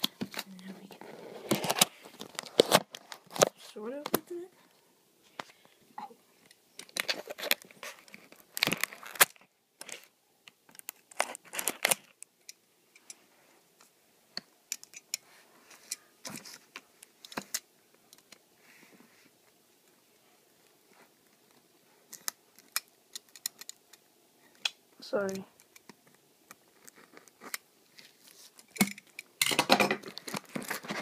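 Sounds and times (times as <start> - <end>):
cardboard tearing and crinkling: 1.3 - 3.6, 7.0 - 9.4, 11.0 - 12.1
packaging clicks and rustles: 1.4 - 3.6, 6.8 - 10.1, 10.7 - 12.3, 25.3 - 31.0.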